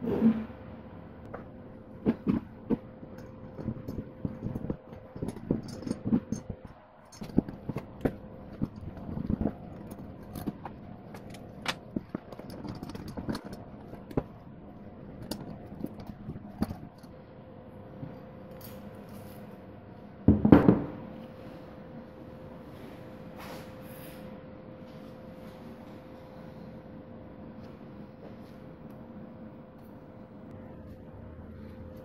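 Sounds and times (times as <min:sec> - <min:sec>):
faint steady hum: 0:00.0 - 0:32.0
engine parts clicking and clinking: 0:02.1 - 0:14.4.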